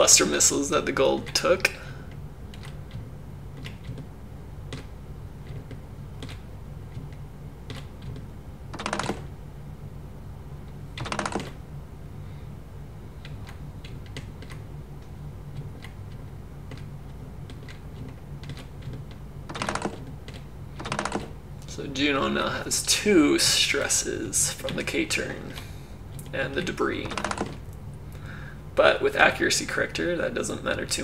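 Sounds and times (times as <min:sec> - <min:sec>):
keyboard clatter: 0:00.2 - 0:04.1, 0:04.7 - 0:09.3, 0:10.7 - 0:11.6, 0:13.2 - 0:27.8
keyboard keys clicking: 0:01.0 - 0:04.1, 0:04.7 - 0:09.3, 0:13.2 - 0:22.4.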